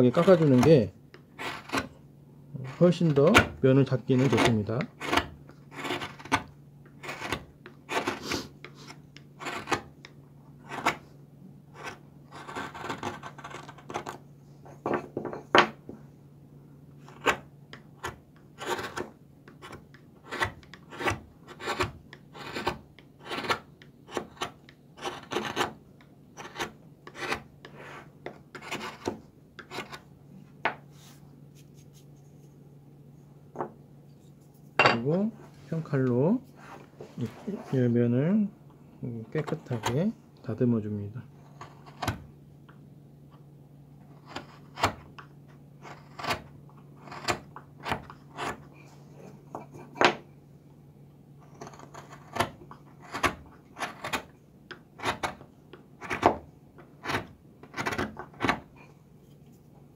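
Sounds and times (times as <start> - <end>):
steady low hum: 0.0 - 59.9
chisel cutting wood: 0.1 - 1.9, 2.7 - 8.3, 9.4 - 10.0, 11.7 - 14.2, 17.1 - 25.8, 26.4 - 30.0, 45.8 - 48.7, 51.4 - 54.3.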